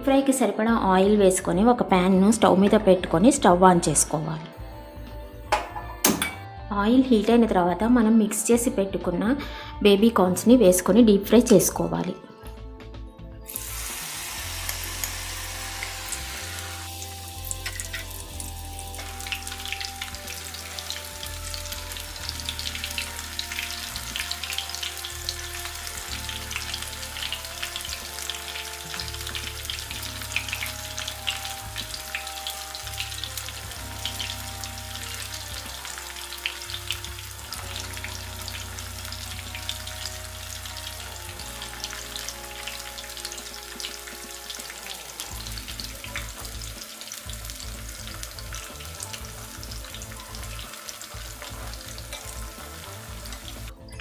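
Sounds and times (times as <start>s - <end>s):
background music of held notes: 0.0s - 54.0s
food deep-frying in hot oil: 13.5s - 53.7s.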